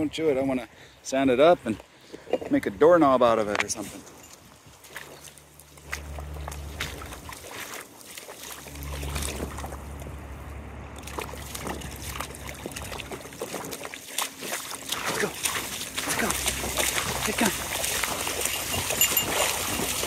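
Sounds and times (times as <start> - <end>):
dog paws splashing in water: 3.2 - 10.2, 10.9 - 20.0
low rumble: 8.6 - 13.5.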